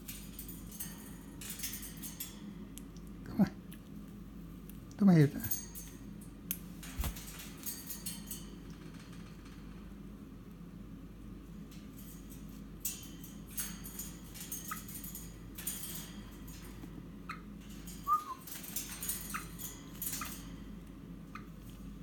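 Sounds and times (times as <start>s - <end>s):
claws scratching on metal cage bars: 17.4s - 21.9s
bird chirps: 18.1s - 18.4s.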